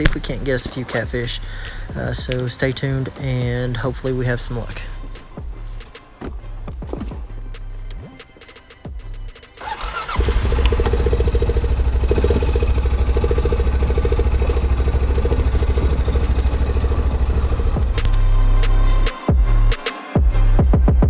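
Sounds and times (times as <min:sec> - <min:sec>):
engine cranking and idling: 0:09.6 - 0:18.4.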